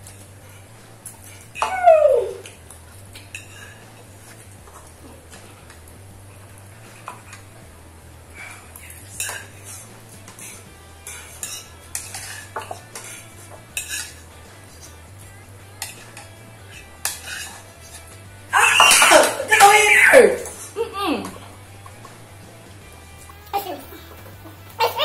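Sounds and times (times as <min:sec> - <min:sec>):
steady low hum: 0:00.0 - 0:01.6, 0:02.4 - 0:18.6
utensils clinking against bowls: 0:01.0 - 0:05.8, 0:09.1 - 0:10.5, 0:11.1 - 0:15.0, 0:15.8 - 0:22.2
loud voice: 0:18.5 - 0:21.3.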